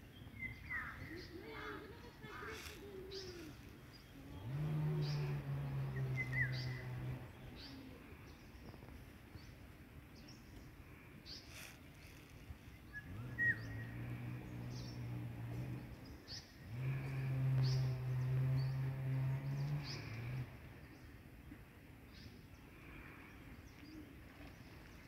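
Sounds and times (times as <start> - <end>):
birds chirping: 0.0 - 25.0
low steady drone: 1.4 - 8.7, 10.2 - 21.3.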